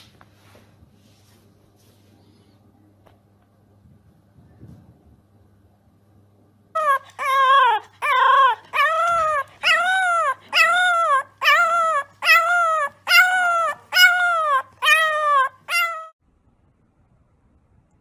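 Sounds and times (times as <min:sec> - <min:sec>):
puppy howling: 0:06.8 - 0:16.2.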